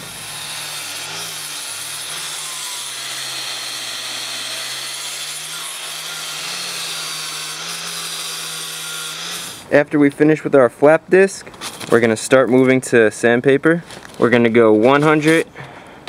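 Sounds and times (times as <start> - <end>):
angle grinder motor running: 0.0 - 9.6
grinder sanding wood: 0.0 - 9.6.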